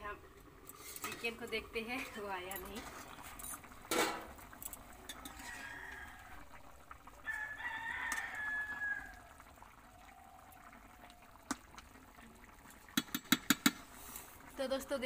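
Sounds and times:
rooster crowing: 0:05.2 - 0:11.3.

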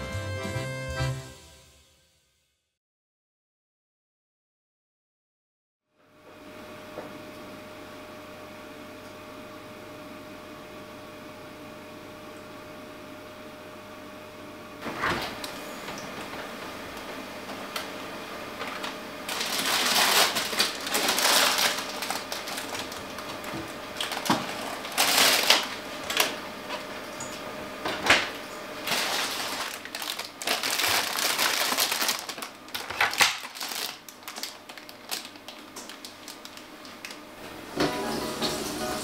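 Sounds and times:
plastic-wrapped vegetables rustling: 0:18.5 - 0:26.4, 0:28.8 - 0:37.2.

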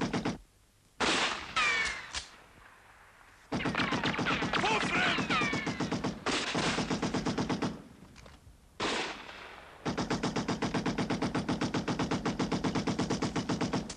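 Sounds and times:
machine gun rapid fire: 0:00.0 - 0:00.4, 0:03.5 - 0:07.8, 0:08.8 - 0:13.9.

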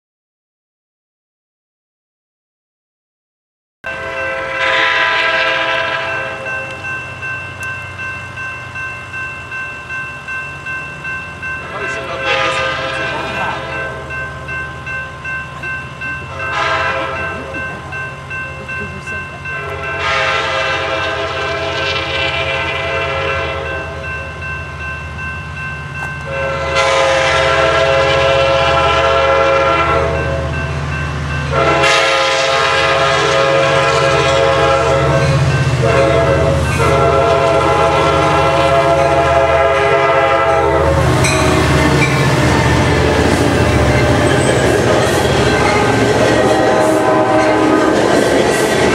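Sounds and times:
train horn blasts: 0:03.9 - 0:06.8, 0:11.8 - 0:14.2, 0:16.3 - 0:17.6, 0:19.6 - 0:24.2, 0:26.2 - 0:30.6, 0:31.4 - 0:48.9
crossing bell dinging: 0:03.9 - 0:48.9
locomotive engine and rail rumble: 0:03.9 - 0:48.9.

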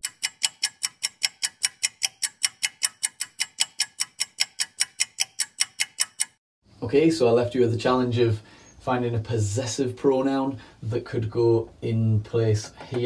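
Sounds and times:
clock ticking: 0:00.0 - 0:06.4.

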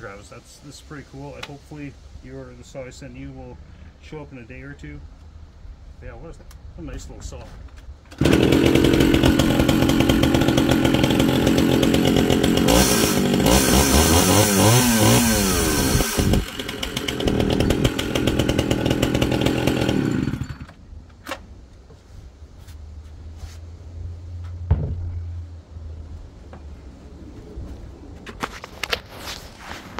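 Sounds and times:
chainsaw running and revving: 0:08.1 - 0:20.7.

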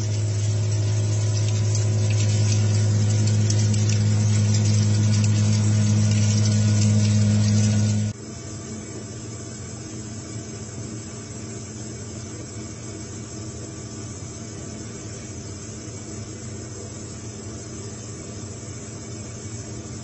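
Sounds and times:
machine hum with hiss: 0:00.0 - 0:20.0.

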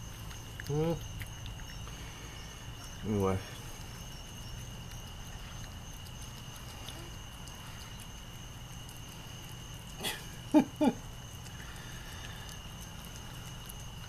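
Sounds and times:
background hiss: 0:00.0 - 0:14.0
cat chewing and licking: 0:00.0 - 0:14.0.

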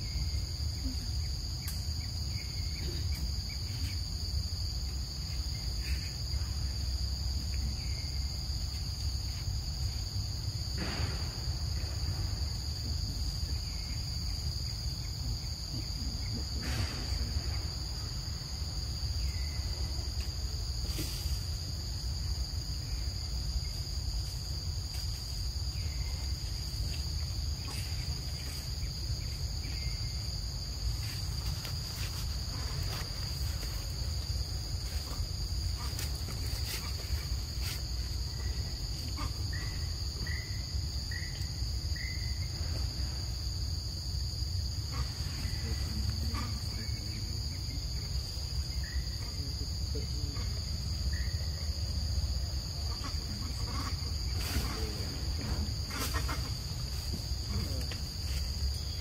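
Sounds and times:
insects droning: 0:00.0 - 0:59.0.

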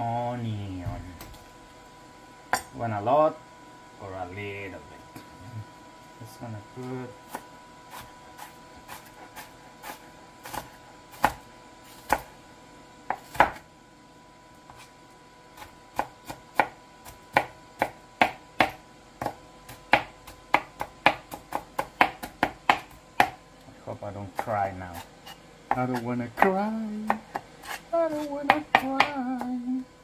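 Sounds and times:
knife chopping onion on board: 0:07.3 - 0:12.3, 0:13.1 - 0:13.6, 0:15.6 - 0:23.4, 0:24.3 - 0:29.6.

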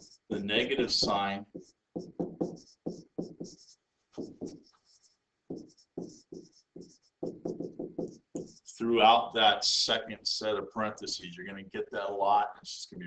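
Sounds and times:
stylus scratching on tablet: 0:00.0 - 0:08.8.

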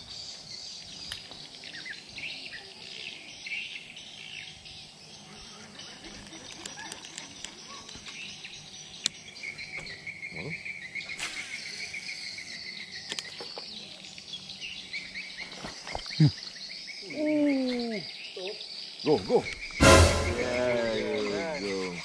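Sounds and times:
insects trilling: 0:00.0 - 0:19.8, 0:20.6 - 0:22.0
birds chirping: 0:00.0 - 0:22.0
low falling sound: 0:19.8 - 0:21.2.

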